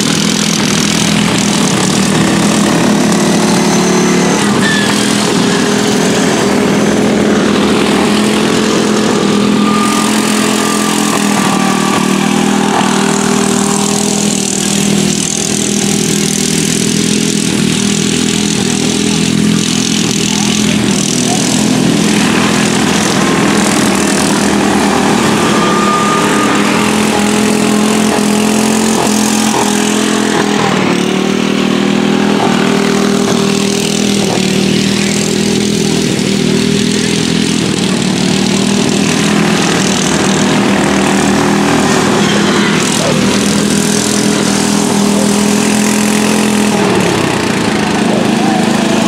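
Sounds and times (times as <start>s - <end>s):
racing lawn mower engines: 0.0s - 49.0s.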